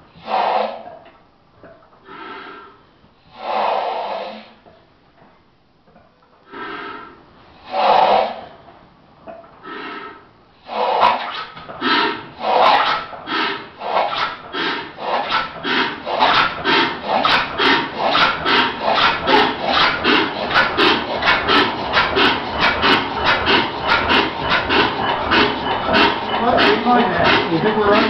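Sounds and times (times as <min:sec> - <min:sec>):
engine rasping chuff: 0:09.7 - 0:28.0.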